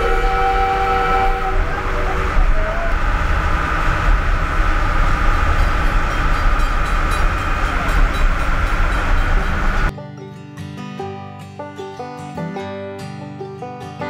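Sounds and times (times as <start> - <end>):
multi-note horn chord: 0.0 - 2.0
rail car rumbling: 0.0 - 10.2.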